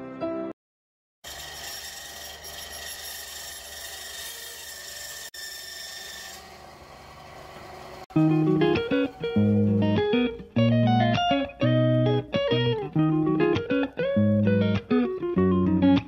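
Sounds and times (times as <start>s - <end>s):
bandsaw blade rasping: 1.2s - 8.1s.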